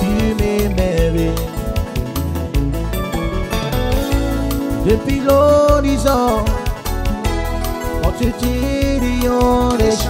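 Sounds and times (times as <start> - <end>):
hula band music: 0.0 - 10.0.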